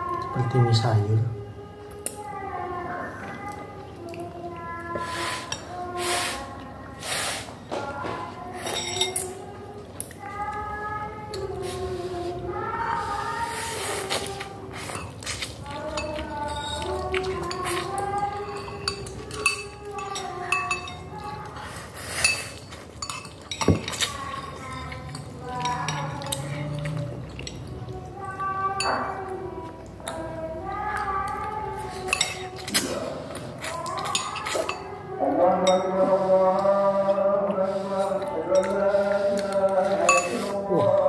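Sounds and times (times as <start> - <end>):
eating noodles with forks: 1.8 - 41.0
cutlery clinking on ceramic bowls: 7.8 - 9.4, 14.8 - 27.7, 28.8 - 29.3, 31.9 - 32.9, 33.6 - 36.1, 38.5 - 41.0.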